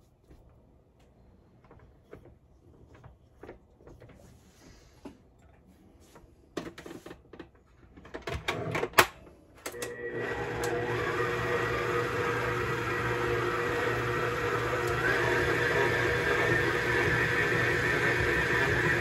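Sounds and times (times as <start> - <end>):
electric mixer motor running: 9.8 - 19.0.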